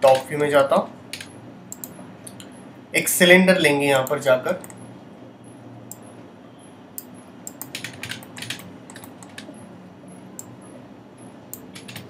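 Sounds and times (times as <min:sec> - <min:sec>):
low room hum: 0:00.0 - 0:12.0
computer keyboard clicking: 0:01.1 - 0:01.9, 0:07.0 - 0:09.5, 0:11.5 - 0:12.0.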